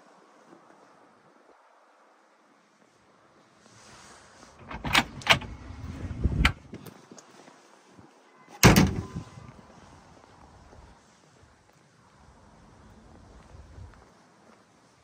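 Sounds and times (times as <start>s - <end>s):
loud thump: 8.6s - 9.2s.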